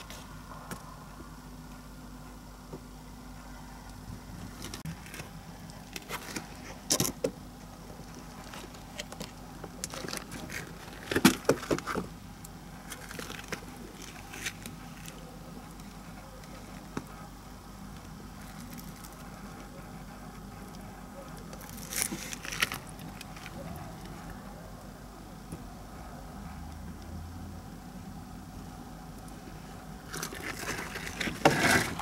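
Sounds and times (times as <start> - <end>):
low hum: 0.0 - 32.0
clicks and rustles on dirt: 4.3 - 17.2, 30.0 - 32.0.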